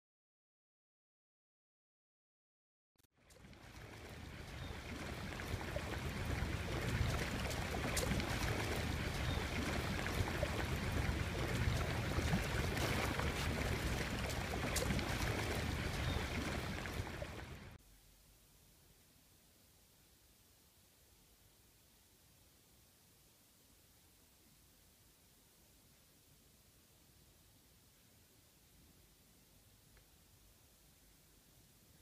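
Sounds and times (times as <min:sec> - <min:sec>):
stream water flowing: 0:03.2 - 0:17.8.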